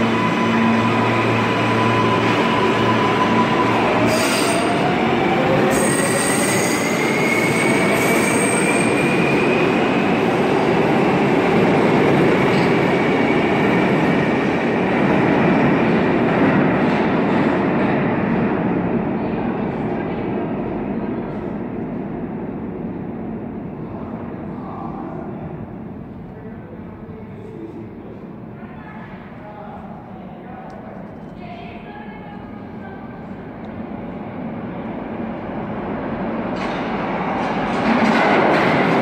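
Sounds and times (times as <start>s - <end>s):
train wheels on rails: 35.6s - 39.0s.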